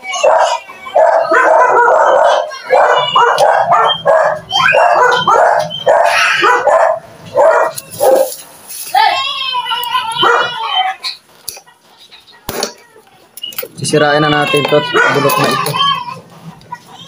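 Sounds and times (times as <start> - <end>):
dog barking: 0.2 - 8.3, 10.2 - 10.5, 14.9 - 15.4.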